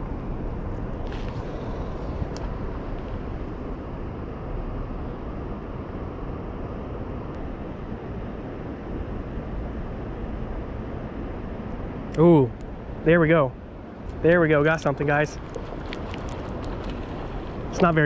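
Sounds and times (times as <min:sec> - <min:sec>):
wind on microphone: 0:00.0 - 0:05.8, 0:14.0 - 0:18.0
distant traffic: 0:00.0 - 0:06.6, 0:07.2 - 0:18.0.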